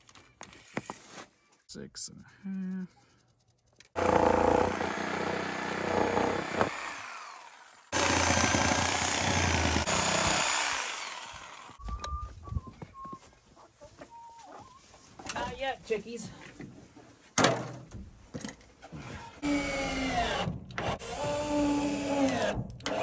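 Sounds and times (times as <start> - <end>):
reciprocating saw cutting wood: 4.0 - 11.8
chickens clucking: 11.8 - 15.2.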